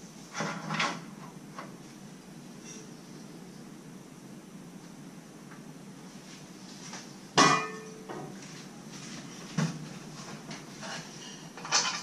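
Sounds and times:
shovel clanking on metal rack: 0:11.6 - 0:12.0.

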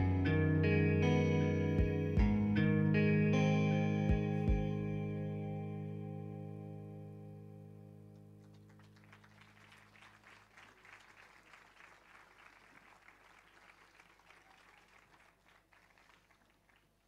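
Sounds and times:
faint audience applause: 0:08.4 - 0:17.0.

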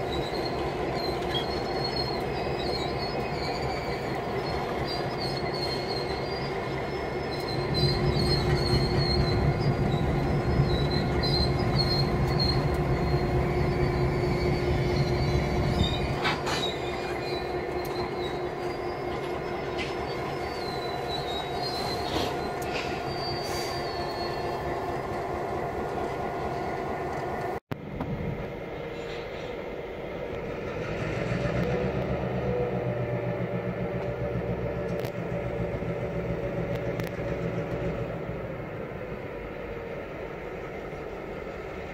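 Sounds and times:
wheel flange squeal: 0:00.0 - 0:27.0
diesel locomotive engine drone: 0:00.0 - 0:41.9.

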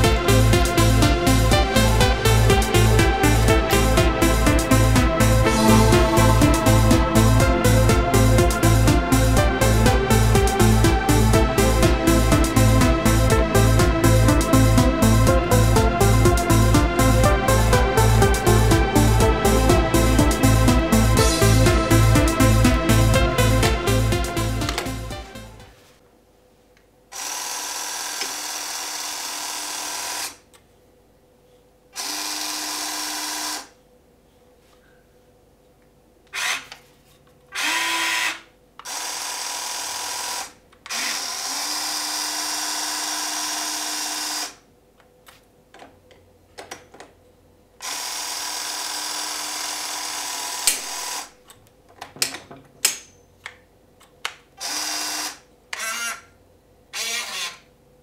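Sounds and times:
toy excavator electric motors: 0:27.1 - 0:30.4, 0:32.0 - 0:33.8, 0:36.3 - 0:36.8, 0:37.5 - 0:44.6, 0:47.8 - 0:51.3, 0:54.6 - 0:56.3, 0:56.9 - 0:57.7.

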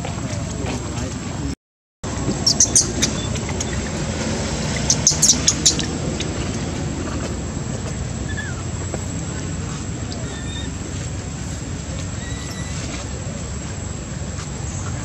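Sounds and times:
outdoor background noise: 0:00.0 - 0:15.0
high-pitched animal chirps: 0:02.4 - 0:03.9, 0:04.8 - 0:05.9, 0:12.2 - 0:12.9.

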